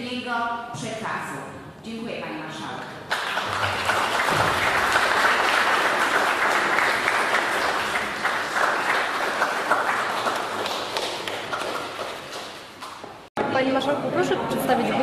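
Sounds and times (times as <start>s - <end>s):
audience applauding: 3.1s - 13.0s.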